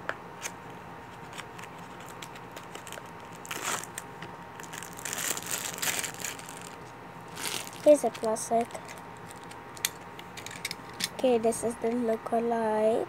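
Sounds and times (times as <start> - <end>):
cardboard and plastic crinkling: 1.2 - 10.7.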